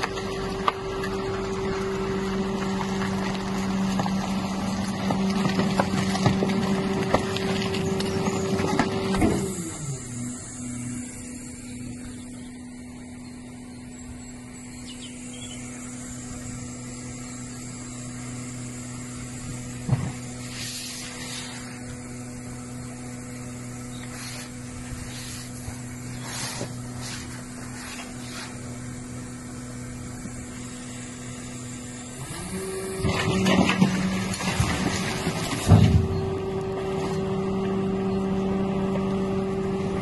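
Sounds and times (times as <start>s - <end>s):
rustles and scrapes: 20.4s - 21.9s, 24.0s - 28.7s.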